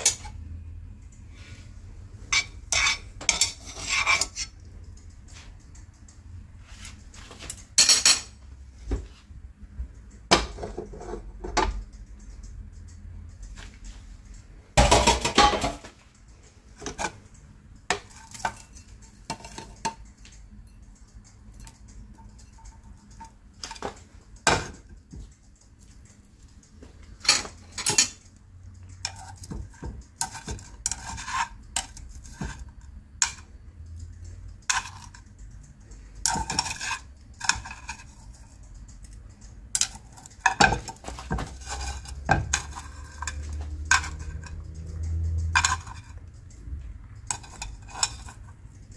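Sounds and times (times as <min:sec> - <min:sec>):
utensils clinking on bowl and pan: 0:00.0 - 0:00.6, 0:02.2 - 0:05.5, 0:06.8 - 0:08.5, 0:14.7 - 0:16.1, 0:16.7 - 0:48.9
low steady hum: 0:00.0 - 0:48.9.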